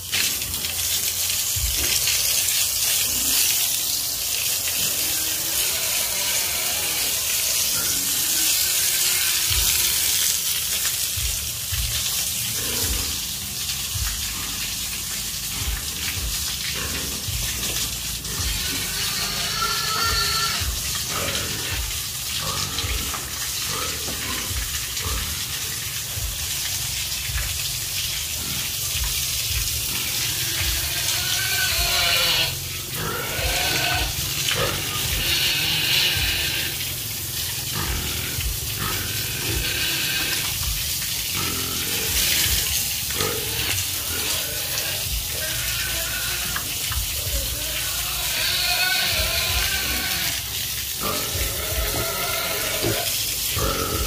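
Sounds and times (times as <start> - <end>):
water spraying from a hose: 0.0 - 54.0
piglets grunting: 18.2 - 25.5, 30.0 - 36.9, 41.3 - 54.0.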